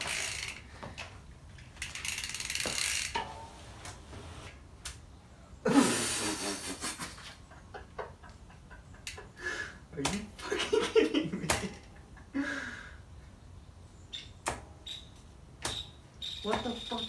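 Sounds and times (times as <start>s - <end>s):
bicycle freehub ratcheting clicks: 0.0s - 0.7s, 1.5s - 3.2s.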